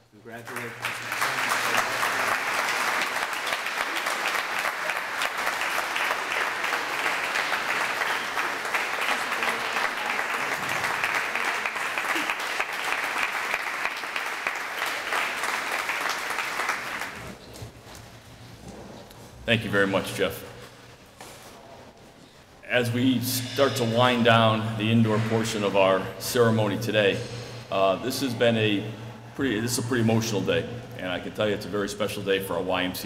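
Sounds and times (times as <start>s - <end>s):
audience applauding: 0.4s - 17.4s.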